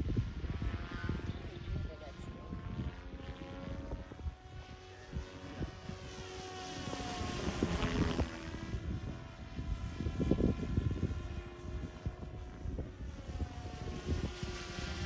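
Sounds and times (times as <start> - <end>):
model helicopter whine: 0.0 - 15.0
gusty low rumble: 7.0 - 15.0.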